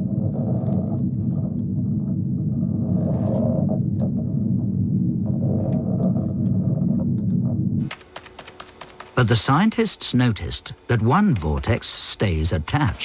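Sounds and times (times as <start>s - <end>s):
low rumbling drone: 0.0s - 7.8s.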